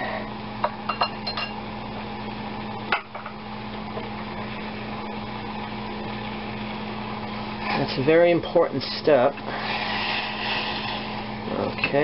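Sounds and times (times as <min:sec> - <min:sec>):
liquid boiling and bubbling: 0:09.4 - 0:11.7.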